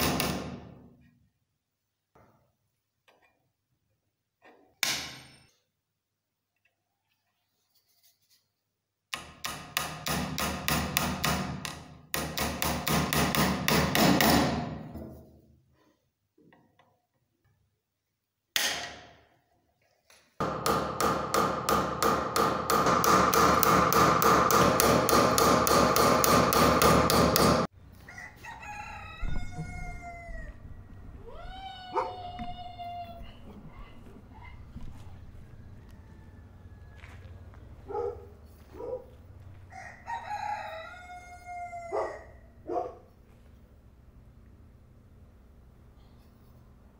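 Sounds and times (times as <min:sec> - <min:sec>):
animal calls rising and falling: 0:28.1 - 0:37.0.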